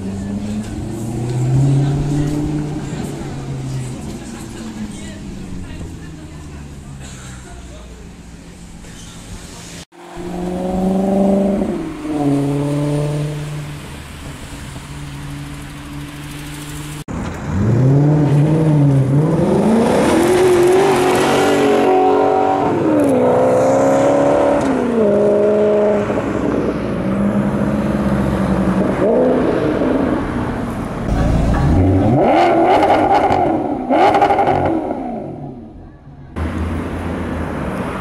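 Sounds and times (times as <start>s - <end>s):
car exhaust accelerating: 10.0s - 35.7s.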